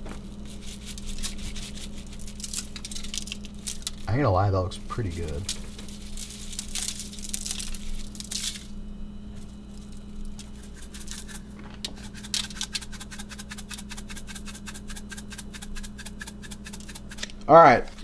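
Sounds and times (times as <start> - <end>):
spice shaker shaking: 0.2 - 4.0, 10.4 - 11.4, 12.0 - 17.3
spice grinder clicking: 12.0 - 17.4.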